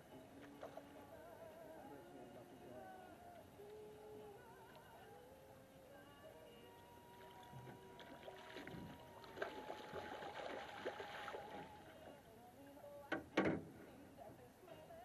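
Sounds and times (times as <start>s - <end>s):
fish splashing in water: 7.2s - 12.0s.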